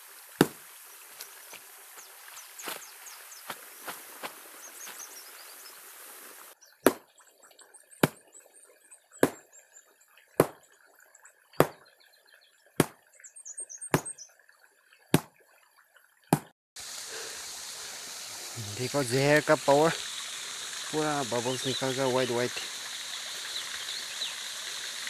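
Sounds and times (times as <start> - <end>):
stick beating plant material: 0.4 - 0.6, 6.8 - 7.0, 9.2 - 9.4, 10.4 - 10.6, 11.6 - 11.8, 13.9 - 14.2
birds chirping faintly: 0.4 - 15.2, 18.5 - 24.9.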